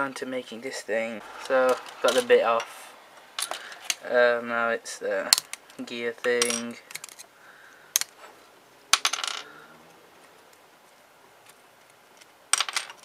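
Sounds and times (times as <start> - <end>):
plastic parts clicking and snapping: 5.3 - 5.8, 6.8 - 7.3.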